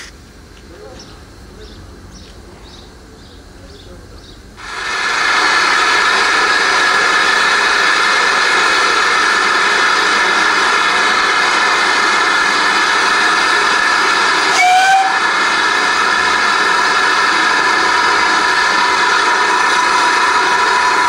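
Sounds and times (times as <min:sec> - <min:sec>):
steam hissing loudly: 0:04.6 - 0:21.0
whistle-like note: 0:14.5 - 0:15.2.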